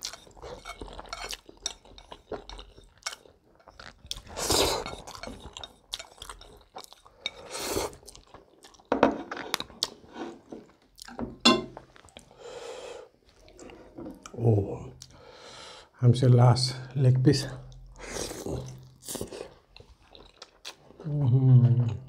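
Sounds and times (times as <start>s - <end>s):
wet chewing: 0.0s - 10.0s
noodle slurping: 3.8s - 6.3s
chopsticks clinking on plate: 11.4s - 11.8s.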